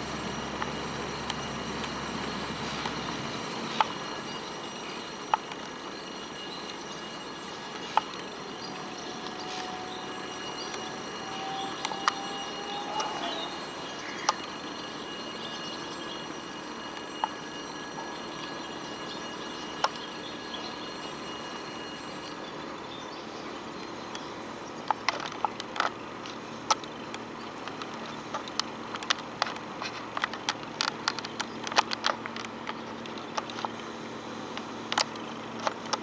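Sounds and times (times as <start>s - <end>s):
boat engine drone: 0.0s - 36.0s
sharp irregular clicks: 24.8s - 33.9s.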